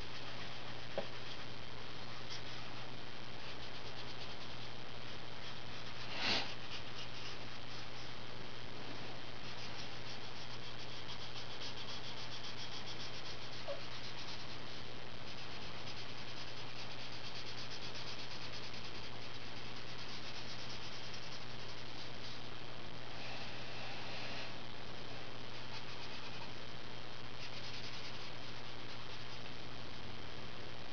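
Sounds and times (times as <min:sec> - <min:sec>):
felt-tip marker scratching on paper: 0:00.0 - 0:01.5, 0:02.1 - 0:08.1, 0:09.4 - 0:22.4, 0:25.5 - 0:26.5, 0:27.4 - 0:29.4
steady hiss and low hum: 0:00.0 - 0:30.9.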